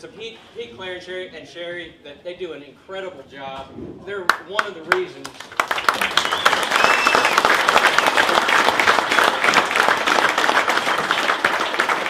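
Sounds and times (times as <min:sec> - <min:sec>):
crowd applauding: 0:04.3 - 0:12.0.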